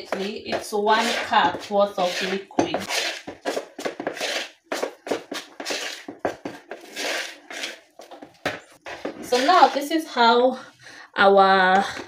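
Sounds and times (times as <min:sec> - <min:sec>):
hand squeezing wet dough: 0:02.0 - 0:06.1.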